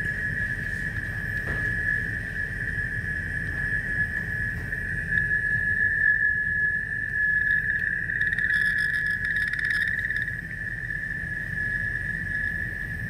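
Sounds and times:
low hum: 0.0 - 13.0
high-pitched electronic tone: 3.5 - 12.6.

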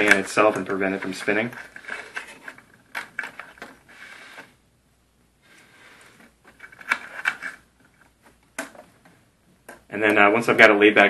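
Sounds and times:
light clicks and scrapes: 0.0 - 4.5
soft rustling of wires: 0.0 - 4.6.

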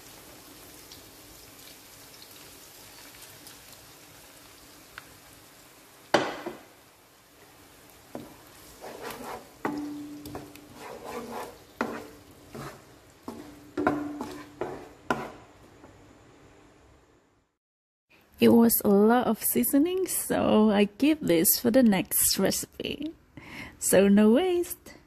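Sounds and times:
faint sizzle: 0.0 - 17.4
wooden spatula scraping a wok: 8.1 - 15.7.

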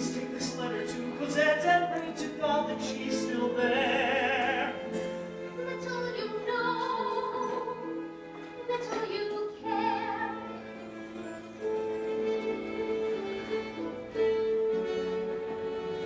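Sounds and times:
orchestra playing sustained notes: 9.6 - 16.0.

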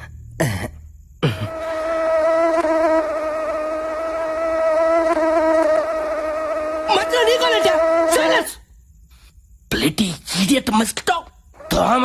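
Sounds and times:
mosquito buzzing: 0.0 - 8.7, 11.5 - 12.0.

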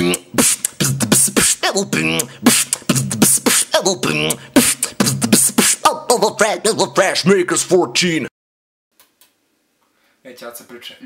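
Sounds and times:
person beatboxing: 0.0 - 8.0.

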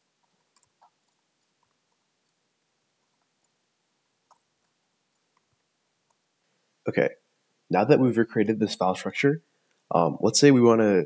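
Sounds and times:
keyboard and mouse clicks: 0.0 - 2.4, 4.2 - 6.2.

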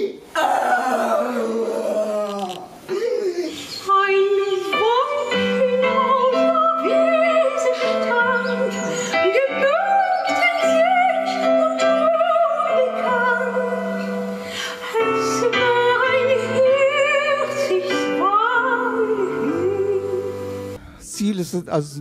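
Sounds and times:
woman singing operatically: 3.8 - 14.0, 14.6 - 20.4.

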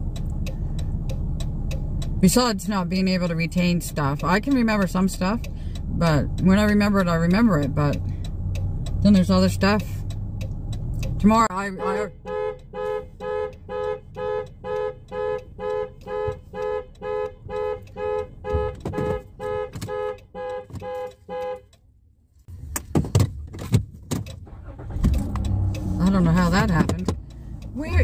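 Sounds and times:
van horn honking beeps: 11.2 - 21.8.

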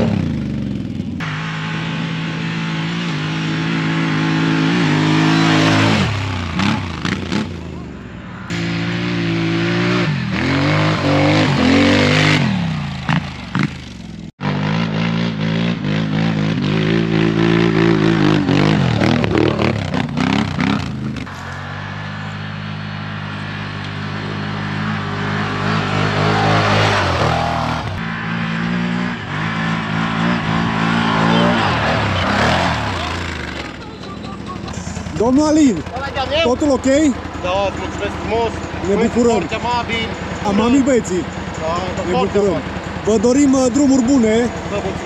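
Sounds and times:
quad engines revving: 0.0 - 45.0.

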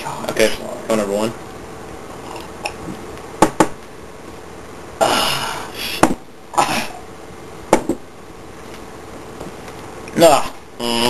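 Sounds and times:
sharp knocks: 3.4 - 3.8, 7.7 - 8.0
person coughing: 6.5 - 7.0.

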